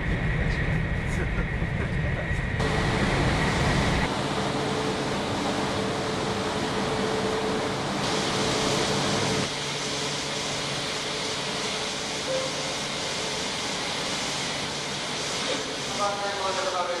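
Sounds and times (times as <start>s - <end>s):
steady hiss: 8.0s - 17.0s.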